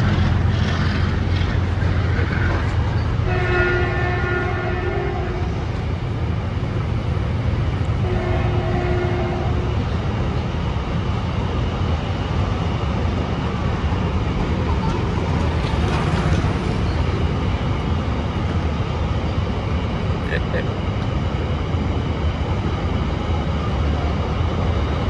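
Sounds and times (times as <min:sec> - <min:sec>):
freight train rumbling past: 0:00.0 - 0:25.0
train horn blasts: 0:03.2 - 0:05.6, 0:08.0 - 0:09.7.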